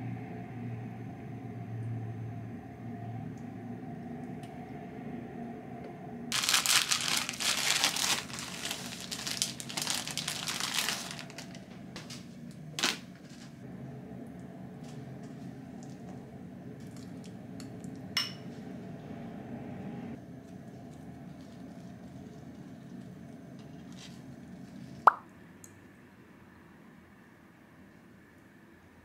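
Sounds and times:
low hum: 0.0 - 25.0
plastic bag crinkling: 6.3 - 13.6.

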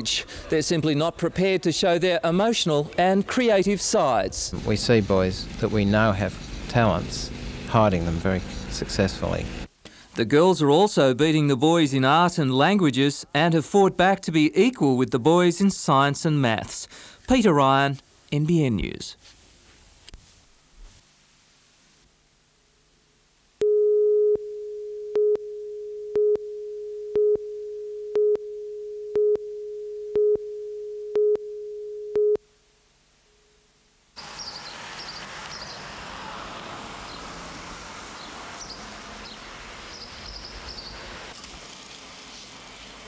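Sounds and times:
background hiss: 0.0 - 43.0
louder beeps: 23.6 - 32.4
steady countdown tone: 23.6 - 32.4.

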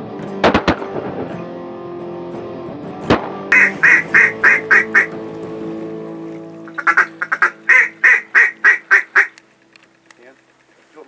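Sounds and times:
guitar music: 0.0 - 10.1
mallard quacking: 3.5 - 5.2, 6.7 - 9.4.

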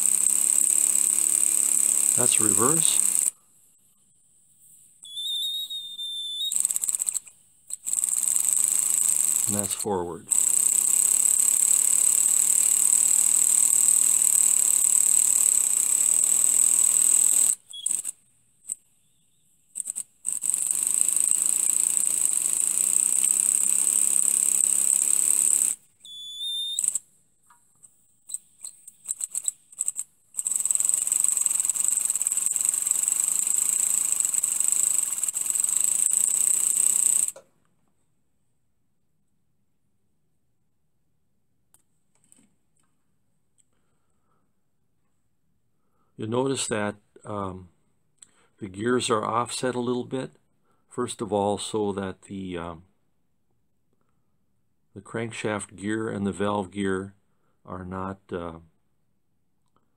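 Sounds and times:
steam engine hissing air: 0.0 - 3.3.

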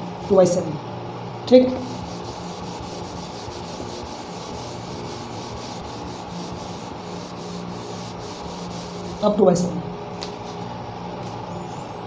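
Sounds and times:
cloth rubbing on whiteboard: 1.7 - 9.6.

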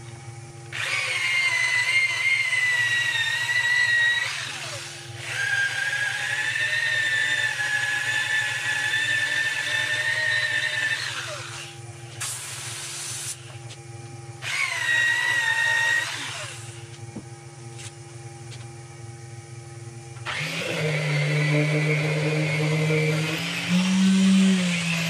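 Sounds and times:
high whirring: 0.0 - 25.0
loud machine droning: 0.0 - 25.0
lathe motor hum: 13.5 - 25.0.

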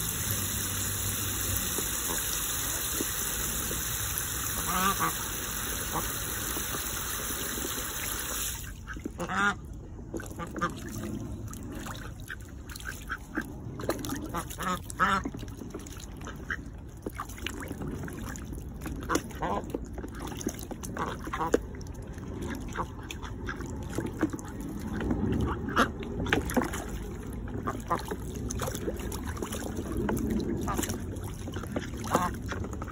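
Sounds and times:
hose spraying into water: 0.0 - 9.3
ducks splashing in water: 0.0 - 32.9
ducks quacking: 4.4 - 6.5, 8.6 - 9.6, 14.1 - 15.3, 30.6 - 32.6.

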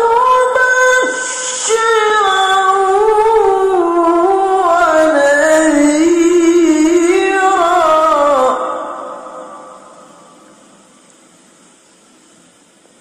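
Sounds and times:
man reciting melodically: 0.0 - 10.1.

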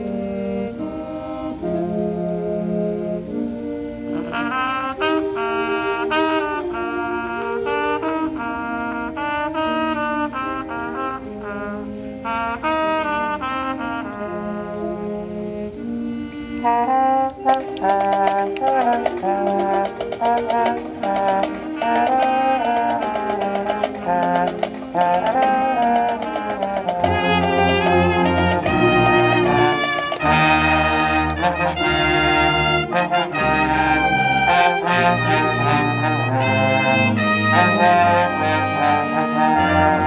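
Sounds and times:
marching band brass: 0.0 - 40.0
snare and bass drums: 17.8 - 38.5.

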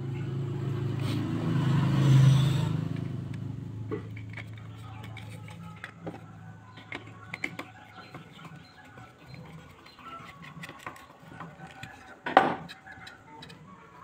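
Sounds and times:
metal and plastic parts clicking: 3.0 - 13.7
scraping knock: 3.8 - 13.8.

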